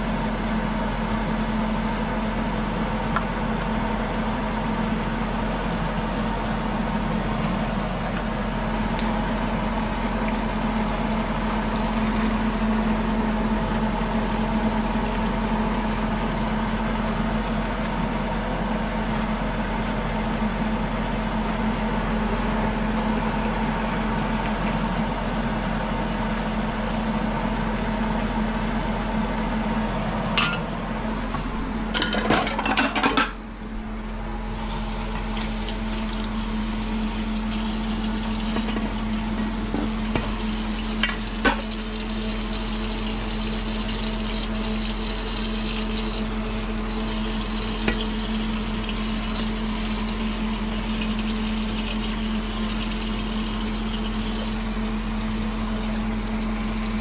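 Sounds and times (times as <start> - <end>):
steady low hum: 0.0 - 57.0
meat and shrimp sizzling in a pan: 40.1 - 55.9.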